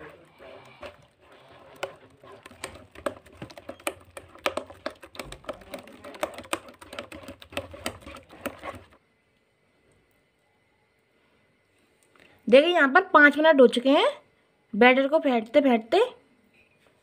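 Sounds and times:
hand slapping wet batter in bowl: 0.0s - 9.0s.

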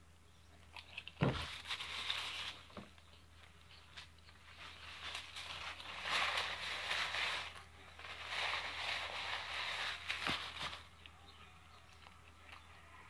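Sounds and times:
paper napkin rustling and crumpling: 1.0s - 3.0s, 3.7s - 11.0s.

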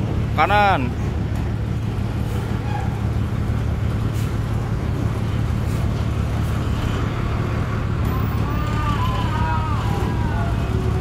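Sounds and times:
bus diesel engine running low: 0.0s - 11.0s.

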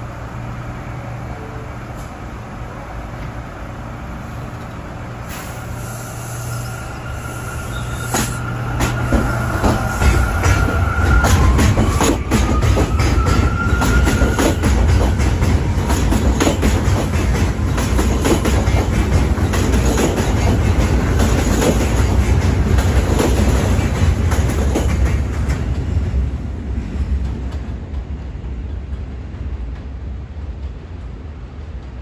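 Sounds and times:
subway wheels clacking over joints: 7.1s - 32.0s.

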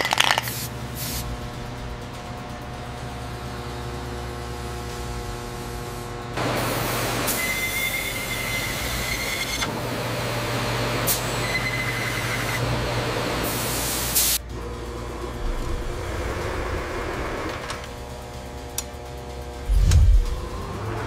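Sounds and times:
machine hum: 0.7s - 7.2s, 14.4s - 21.0s.

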